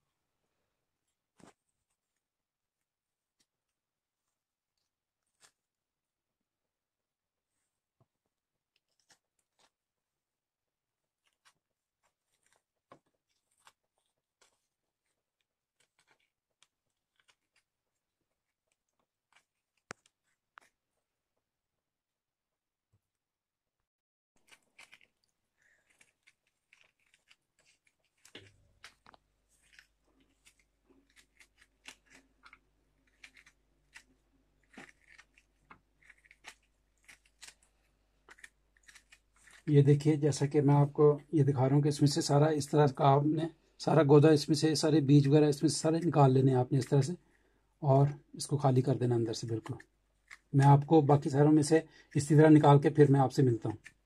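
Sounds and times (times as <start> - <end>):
knife scraping gourd: 11.2 - 17.7, 24.4 - 40.5, 49.8 - 50.6.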